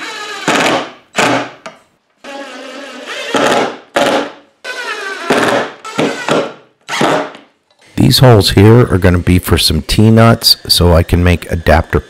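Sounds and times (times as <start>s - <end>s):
impact driver whine and hammering: 3.0s - 7.4s.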